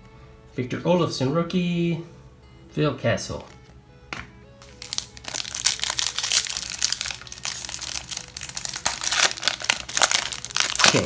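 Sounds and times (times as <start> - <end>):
foil wrapper crinkling and tearing: 4.6 - 11.0.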